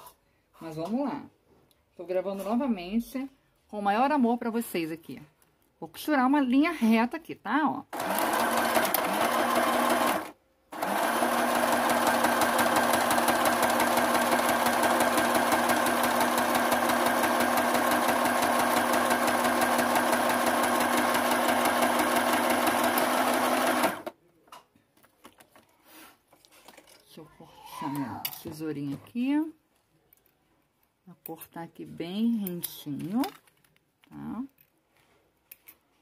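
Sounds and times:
electric sewing machine stitching: 0:08.0 - 0:24.2.

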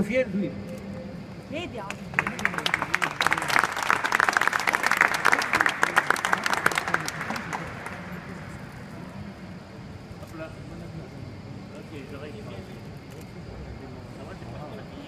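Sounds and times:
crowd clapping: 0:01.8 - 0:09.0.

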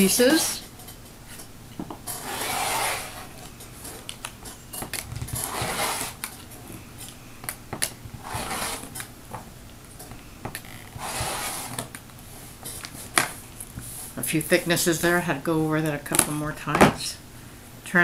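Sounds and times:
rotary cutter cutting fabric: 0:02.1 - 0:03.3, 0:05.3 - 0:06.3, 0:08.2 - 0:09.0, 0:11.0 - 0:11.9.

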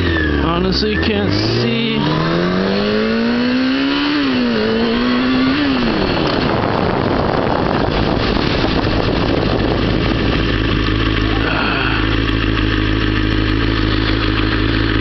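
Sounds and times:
motorcycle engine revving: 0:00.0 - 0:15.0
wind rush on microphone: 0:04.6 - 0:11.1.

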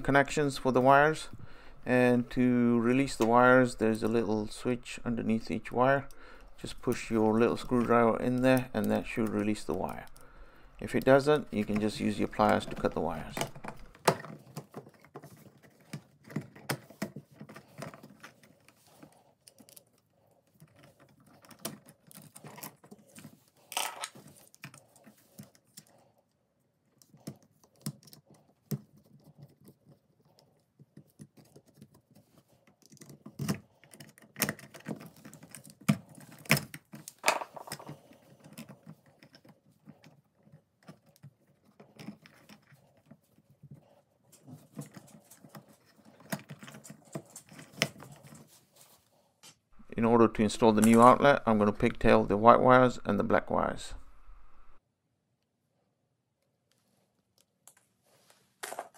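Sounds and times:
clicks and scrapes of handling outlet: 0:10.8 - 0:25.9, 0:27.0 - 0:43.8, 0:44.4 - 0:48.5.

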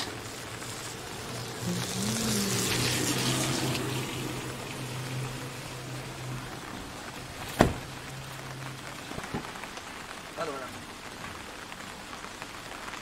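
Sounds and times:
rain falling: 0:00.0 - 0:13.0
umbrella popping open: 0:07.4 - 0:08.0.

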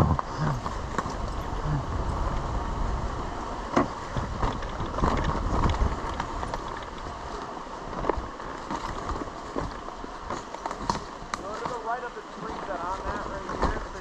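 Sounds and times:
wind on microphone: 0:00.0 - 0:11.4.

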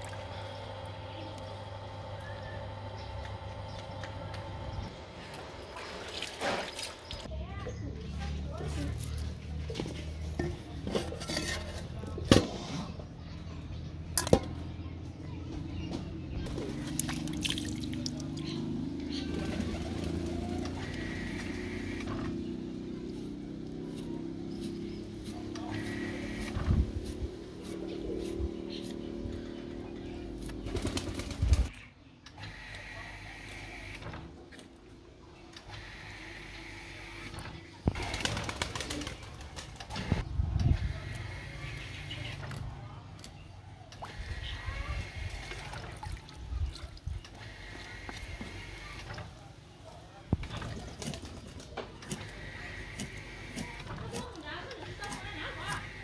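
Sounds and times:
roe handled in metal bowl: 0:08.7 - 0:12.9.

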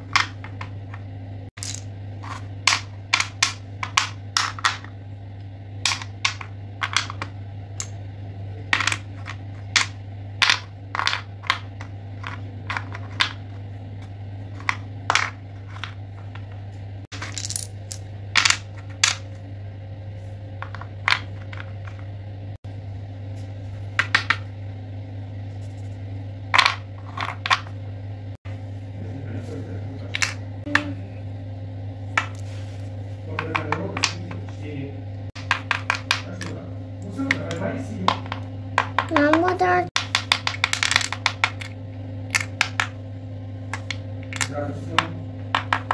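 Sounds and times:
steady low hum: 0:00.0 - 0:45.9
wooden puzzle pieces clacking: 0:01.6 - 0:04.8, 0:05.9 - 0:07.3, 0:08.7 - 0:13.4, 0:17.2 - 0:19.2, 0:33.4 - 0:34.6, 0:35.4 - 0:36.5, 0:40.0 - 0:42.9.

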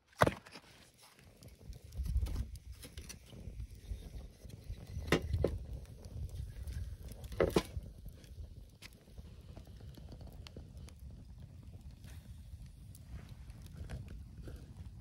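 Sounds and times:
wood knocking in fire pit: 0:04.9 - 0:06.1, 0:06.7 - 0:08.2.

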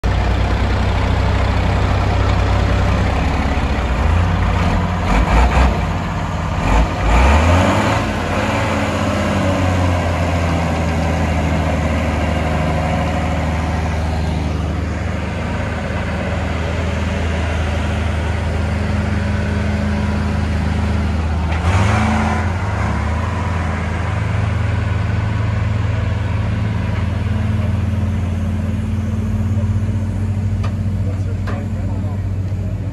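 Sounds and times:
diesel engines under heavy load: 0:00.0 - 0:32.9.

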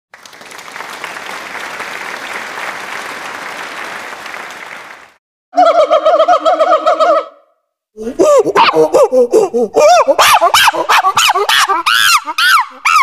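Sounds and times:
monkey wavering pitched calls: 0:05.6 - 0:07.5, 0:09.8 - 0:13.0
monkeys chattering: 0:08.2 - 0:13.0.

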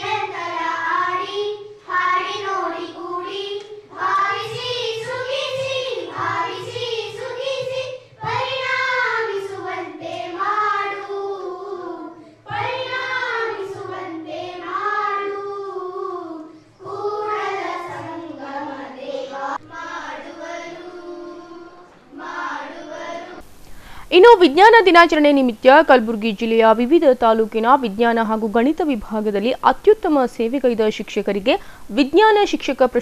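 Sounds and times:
girls singing into a microphone: 0:00.0 - 0:23.6.

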